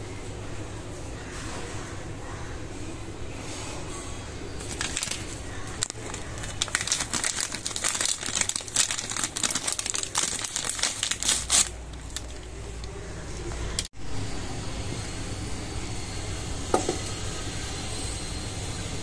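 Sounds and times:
plastic packet crinkling: 4.6 - 13.0.

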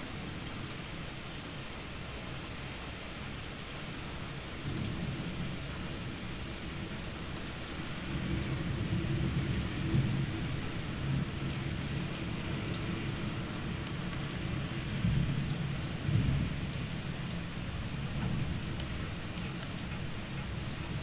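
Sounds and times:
steady rain: 0.0 - 21.0
low rolling thunder: 8.0 - 19.2.

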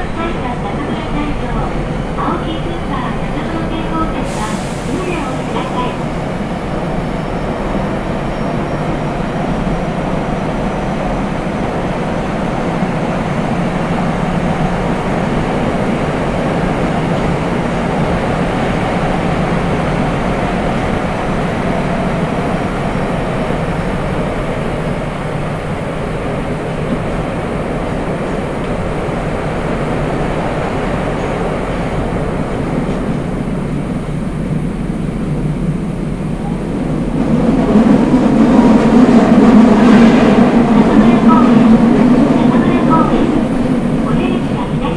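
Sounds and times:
train wheels roaring on rail: 0.0 - 44.9.

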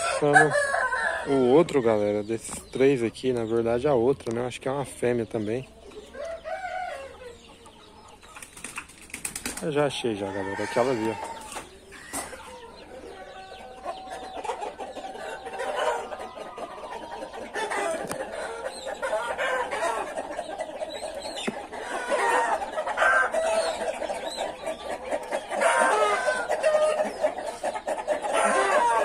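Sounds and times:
chickens clucking and calling: 0.0 - 29.0.

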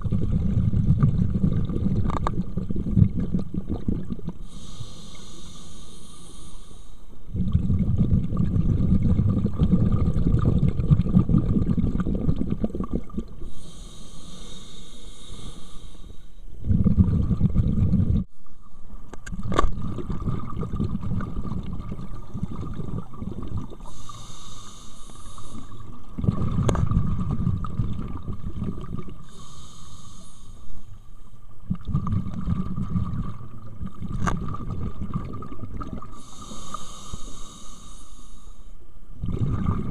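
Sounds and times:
bubbling exhaled air: 0.0 - 6.6, 7.3 - 18.3, 19.4 - 30.9, 31.6 - 38.5, 39.2 - 39.9
regulator hissing inhales: 4.4 - 7.1, 13.4 - 16.4, 23.8 - 25.9, 29.2 - 31.1, 36.1 - 38.8.

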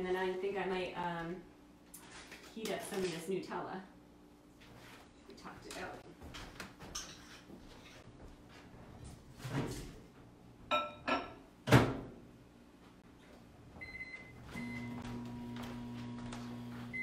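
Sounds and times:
microwave humming: 13.7 - 17.0.

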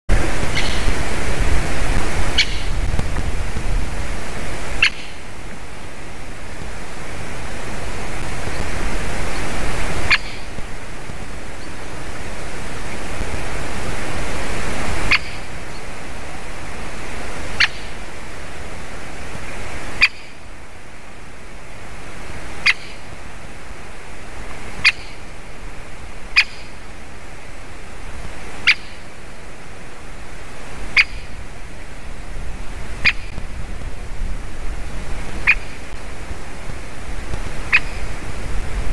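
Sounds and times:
steady hiss: 0.1 - 38.9
woodpecker sharp calls: 0.5 - 0.9, 2.3 - 2.8, 4.8 - 5.3, 10.0 - 10.6, 15.1 - 15.8, 17.6 - 18.0, 20.0 - 20.4, 22.6 - 23.1, 24.8 - 25.3, 26.3 - 26.8, 28.6 - 29.0, 30.9 - 31.4, 33.0 - 33.4, 35.4 - 35.9, 37.6 - 38.2.

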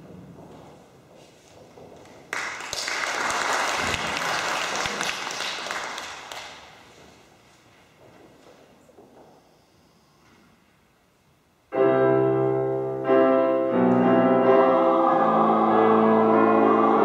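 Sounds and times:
audience applauding: 2.0 - 7.0.

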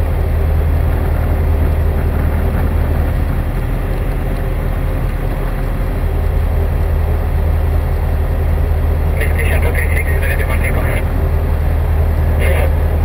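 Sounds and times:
aircraft engine drone: 0.0 - 13.0.

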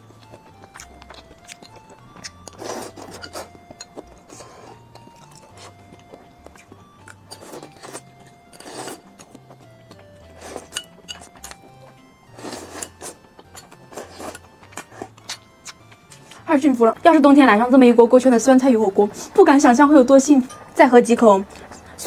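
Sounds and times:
soft background music: 0.0 - 22.0
slurping and chewing noodles: 0.3 - 16.5.

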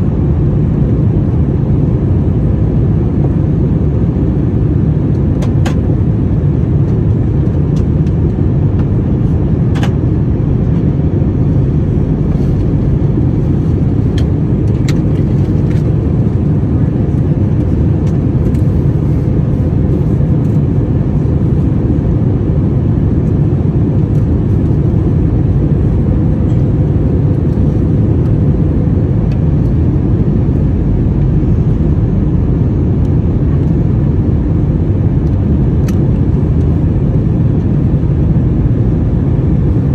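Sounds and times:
aircraft engines rumbling: 0.0 - 39.9
faint steady hum: 0.0 - 39.9
rushing air: 8.5 - 37.6.

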